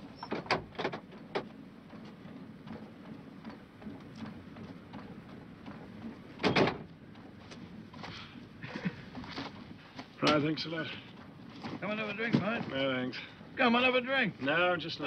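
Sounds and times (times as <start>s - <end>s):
vehicle knocks and clunks: 0.2s - 2.1s, 5.7s - 6.9s.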